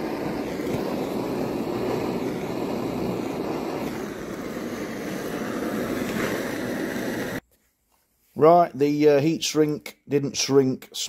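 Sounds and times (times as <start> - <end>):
blowtorch flame rushing: 0.0 - 7.4.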